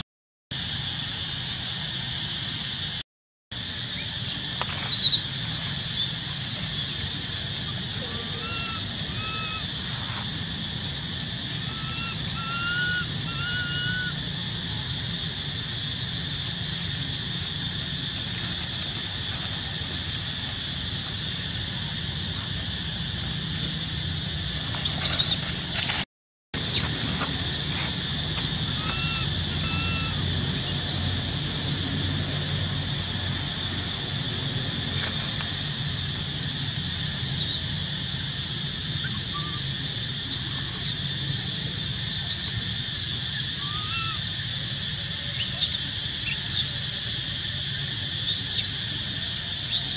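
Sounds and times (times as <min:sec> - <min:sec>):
high-pitched insect drone: 0:03.6 - 0:26.0, 0:26.6 - 0:49.9
faint whistled calls: 0:03.9 - 0:05.3, 0:07.9 - 0:10.0, 0:11.6 - 0:14.2, 0:28.7 - 0:30.2, 0:39.0 - 0:41.0, 0:43.4 - 0:44.2
dry leaves rustling: 0:17.7 - 0:21.8.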